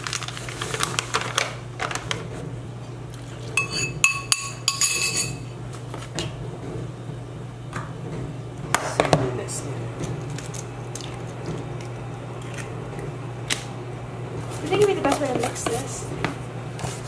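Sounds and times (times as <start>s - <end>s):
steady low hum: 0.8s - 17.0s
kitchen utensils clinking: 3.5s - 5.6s.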